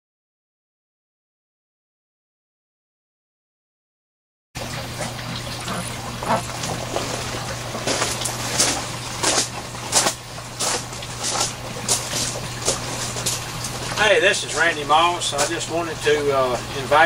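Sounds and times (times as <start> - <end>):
trickling water: 4.6 - 17.0
footsteps on wood chips: 6.7 - 13.7.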